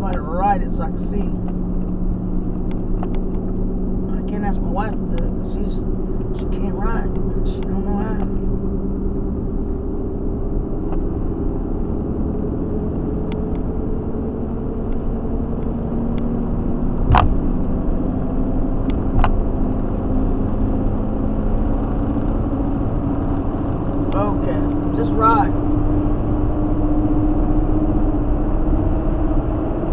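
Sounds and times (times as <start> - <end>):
car road and engine noise: 0.0 - 29.9
sharp knocks: 17.1 - 17.5.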